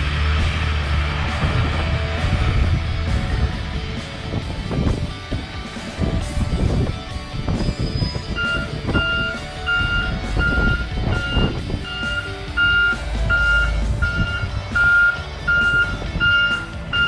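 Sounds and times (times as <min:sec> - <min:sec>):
truck engine rumble: 0:00.0 - 0:17.0
truck reversing alarm beeping: 0:07.6 - 0:17.0.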